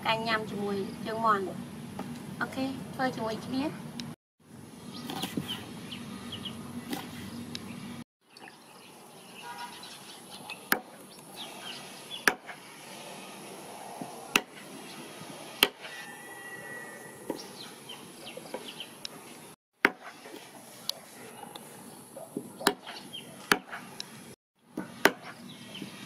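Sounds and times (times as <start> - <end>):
knife chopping on wooden block: 12.2 - 12.6, 14.3 - 14.6, 15.6 - 15.9, 22.6 - 23.8.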